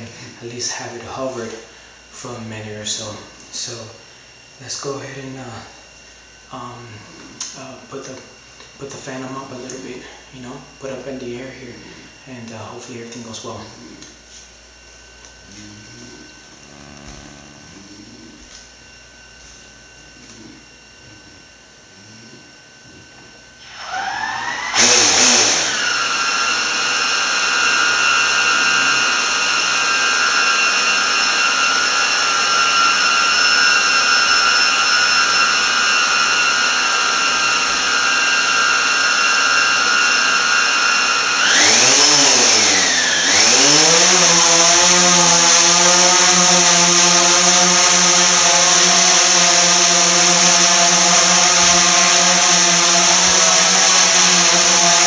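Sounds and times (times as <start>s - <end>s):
drone hovering buzz: 0.0s - 38.6s
drone propellers whining: 10.8s - 55.0s.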